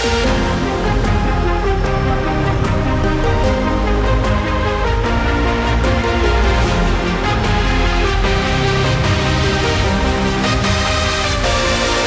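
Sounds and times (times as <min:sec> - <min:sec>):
electronic music with heavy bass: 0:00.0 - 0:12.0.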